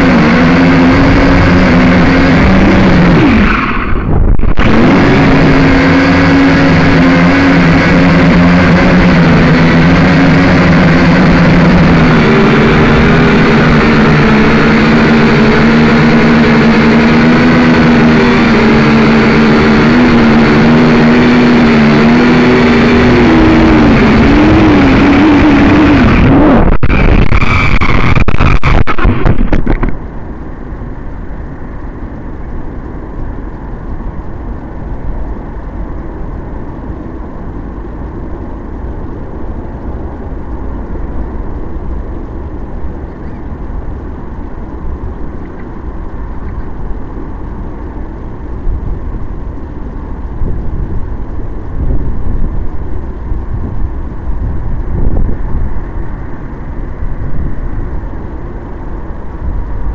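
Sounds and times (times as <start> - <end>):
wind buffeting microphone: 0.0 - 8.7, 22.2 - 59.9.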